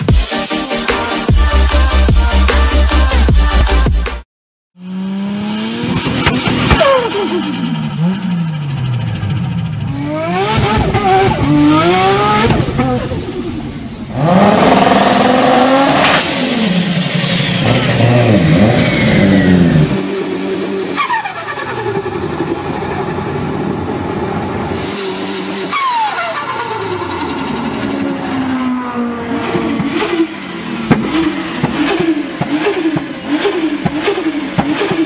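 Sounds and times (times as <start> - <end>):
car engine revving: 4.8 - 35.0.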